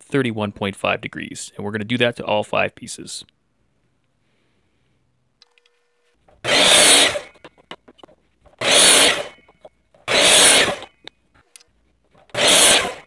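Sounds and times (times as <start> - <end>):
miter saw cutting wood: 6.4 - 7.4, 8.6 - 9.4, 10.0 - 10.9, 12.3 - 13.0.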